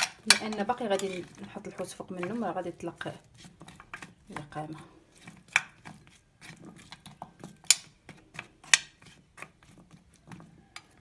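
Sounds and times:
spoon scraping glass dish: 0:00.3 - 0:01.5.

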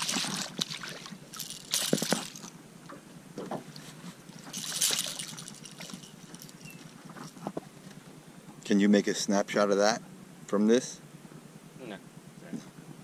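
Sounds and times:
fish thrashing and splashing: 0:00.0 - 0:02.6, 0:04.2 - 0:07.4.

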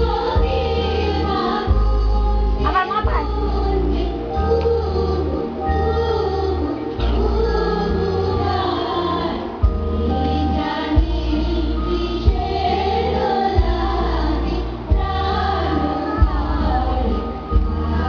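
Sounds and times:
booming bass line: 0:00.0 - 0:18.0
song with singing: 0:00.0 - 0:18.0.

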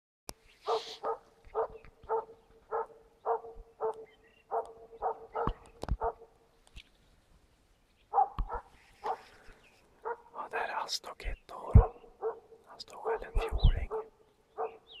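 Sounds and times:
dog barking: 0:00.6 - 0:06.3, 0:08.1 - 0:09.3, 0:10.0 - 0:10.4, 0:11.7 - 0:14.9.

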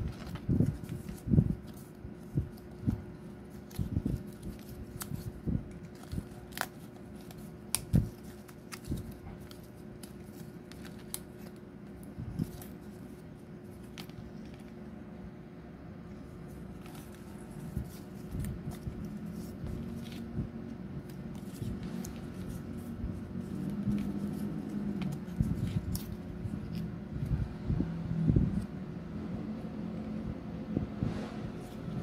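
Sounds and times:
card crackles: 0:00.0 - 0:14.9, 0:16.4 - 0:26.9
cardstock folding and rustling: 0:00.0 - 0:15.0, 0:16.1 - 0:27.4, 0:30.0 - 0:32.0.

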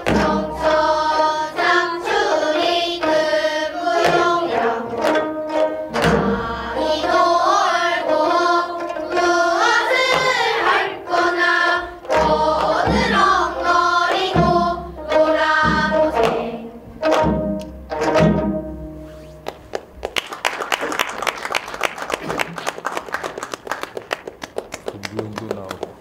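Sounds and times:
barrel drum thumps: 0:00.0 - 0:01.0, 0:03.9 - 0:07.7, 0:09.6 - 0:19.0
children singing in unison: 0:00.0 - 0:17.4
plucked zither: 0:00.0 - 0:19.0.

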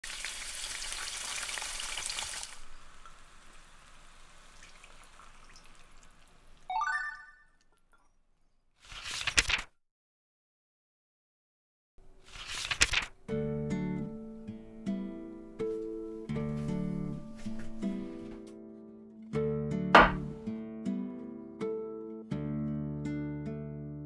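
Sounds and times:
beef sizzling in frying pan: 0:00.0 - 0:05.4
sauce poured hissing: 0:00.1 - 0:06.7.

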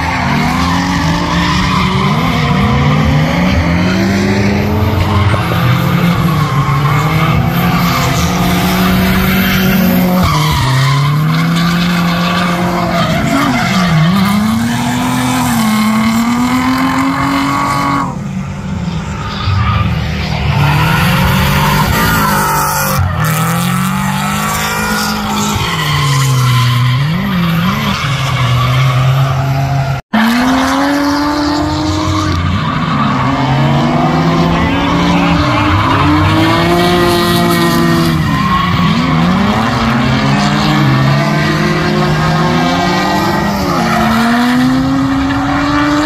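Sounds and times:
car engines revving: 0:00.0 - 0:46.0
tires skidding and squealing: 0:00.0 - 0:46.0.

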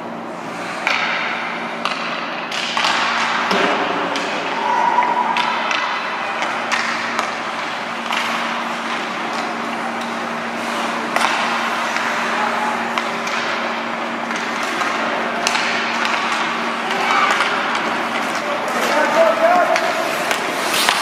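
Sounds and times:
steady low hum: 0:00.0 - 0:21.0
hockey sticks and puck clacking: 0:00.4 - 0:21.0
skates scraping on ice: 0:14.3 - 0:21.0.

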